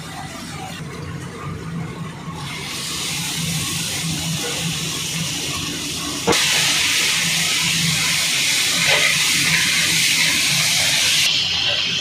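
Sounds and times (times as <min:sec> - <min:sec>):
tomato slices sizzling in oil: 0:06.3 - 0:12.0.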